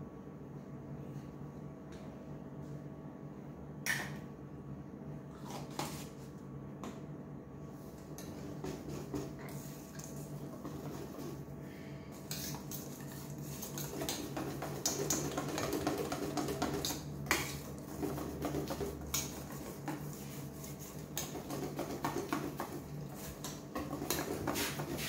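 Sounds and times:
whisk scraping metal bowl: 10.4s - 11.5s, 12.2s - 25.0s.

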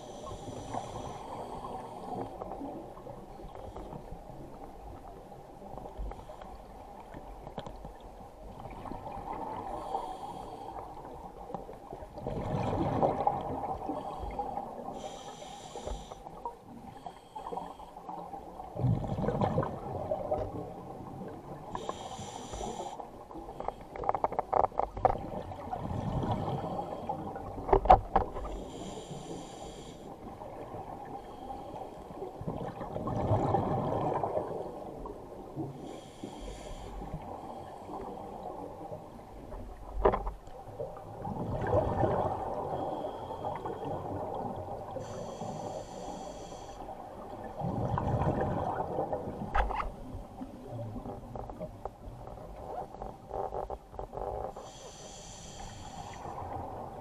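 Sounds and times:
regulator inhalation hiss: 0.0s - 2.2s, 15.0s - 16.3s, 21.8s - 23.1s, 28.6s - 30.1s, 35.8s - 37.0s, 45.0s - 46.9s, 54.6s - 56.4s
exhaled bubbles rushing: 47.6s - 49.0s.

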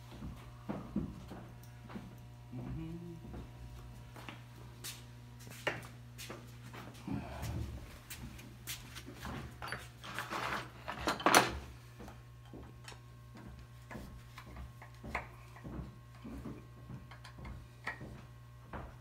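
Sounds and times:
low hum: 6.8s - 8.5s.

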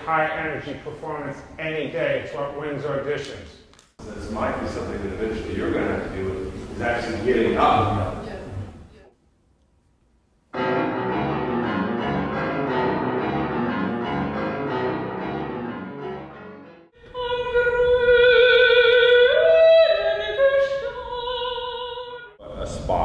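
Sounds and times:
woman singing operatic style: 17.0s - 22.4s.

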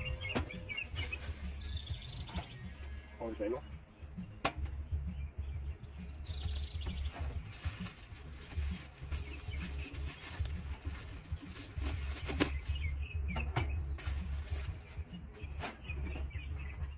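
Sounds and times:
bubble wrap crinkling: 0.9s - 2.0s, 6.7s - 13.0s, 13.9s - 15.6s.

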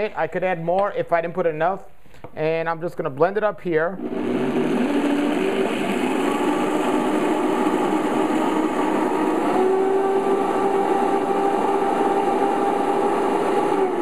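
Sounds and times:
blender running: 4.0s - 14.0s.

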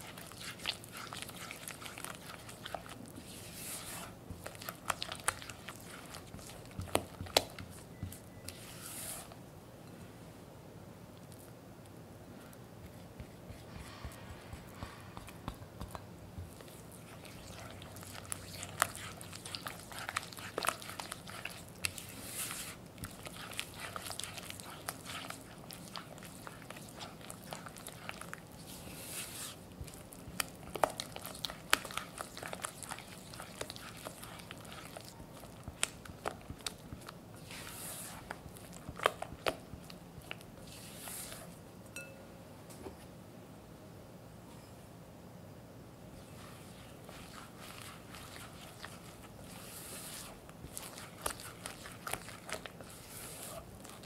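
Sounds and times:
wet squelching and scraping: 0.0s - 9.4s, 16.5s - 41.6s, 46.2s - 54.0s
spatula tapping glass bowl: 42.0s - 42.2s.

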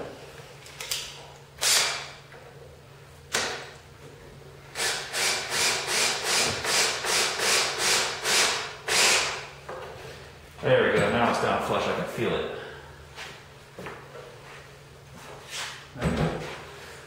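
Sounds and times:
cordless drill driving a screw: 1.6s - 2.0s, 4.8s - 9.4s.

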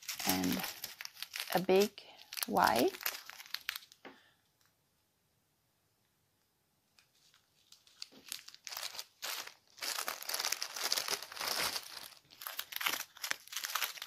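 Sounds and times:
plastic bags crinkling: 0.0s - 4.1s, 7.1s - 14.0s.

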